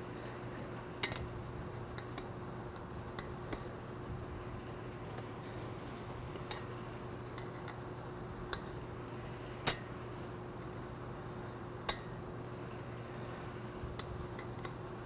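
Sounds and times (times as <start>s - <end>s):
faint steady hum: 0.0s - 15.0s
wrench clinking on metal bolt: 1.0s - 2.3s.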